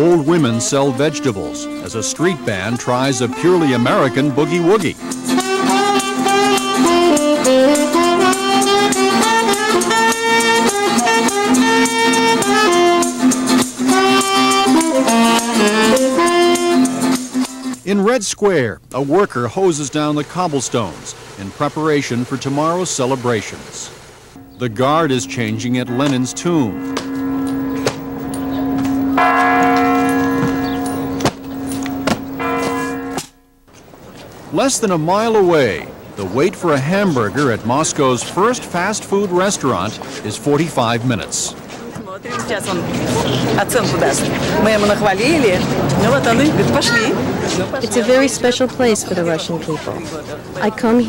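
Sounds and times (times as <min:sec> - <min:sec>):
tenor saxophone melody: 0:00.0 - 0:17.5, 0:24.4 - 0:33.4
acoustic guitar: 0:00.0 - 0:19.2, 0:24.4 - 0:51.0
steady rhythmic beat: 0:01.6 - 0:17.8, 0:24.4 - 0:33.3
large clock tower bells ringing: 0:24.4 - 0:33.5, 0:34.6 - 0:41.4, 0:42.3 - 0:49.5.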